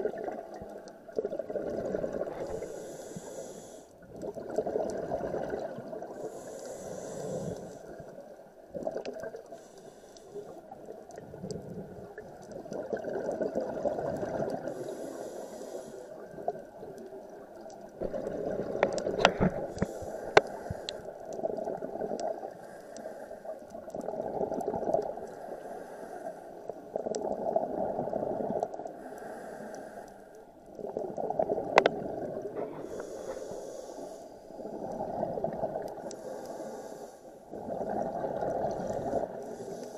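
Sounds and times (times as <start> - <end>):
gurgling exhaled bubbles: 0.0 - 2.7, 4.0 - 9.5, 10.8 - 14.9, 16.2 - 22.6, 23.7 - 25.3, 26.9 - 28.9, 30.8 - 33.5, 34.5 - 36.2, 37.5 - 39.6
regulator hissing inhale: 2.4 - 4.0, 6.2 - 7.9, 9.5 - 10.6, 14.7 - 16.2, 19.7 - 21.1, 22.6 - 23.6, 25.3 - 26.6, 29.0 - 30.5, 32.6 - 34.8, 36.0 - 37.5, 39.0 - 39.9.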